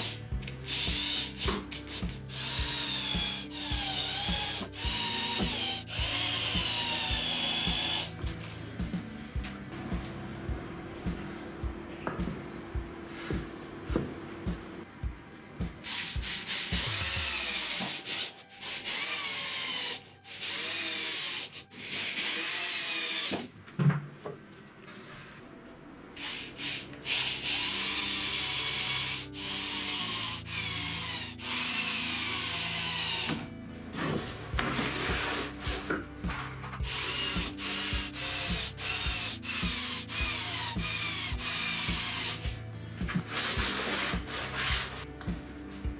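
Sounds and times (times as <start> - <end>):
cordless drill whining: 0.0 - 8.2, 16.7 - 23.4, 36.8 - 42.5
background music: 0.0 - 23.6, 25.5 - 45.9.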